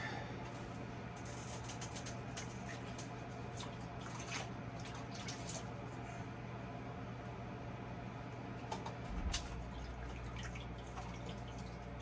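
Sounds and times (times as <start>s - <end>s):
steady low hum: 0.0s - 12.0s
water dripping and splashing: 1.9s - 5.8s, 9.2s - 12.0s.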